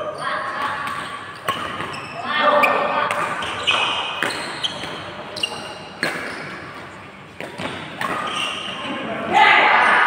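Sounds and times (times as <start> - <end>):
rackets striking shuttlecock: 0.6 - 2.0, 3.1 - 8.7
shoe squeaks: 1.2 - 7.0, 8.0 - 8.9.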